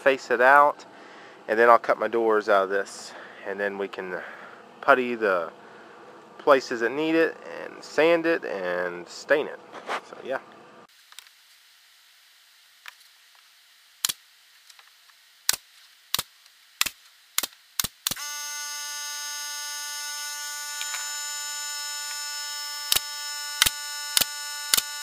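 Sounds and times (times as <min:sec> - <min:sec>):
nail gun firing: 0:15.5 - 0:18.3, 0:22.9 - 0:25.0
air compressor humming: 0:18.1 - 0:25.0.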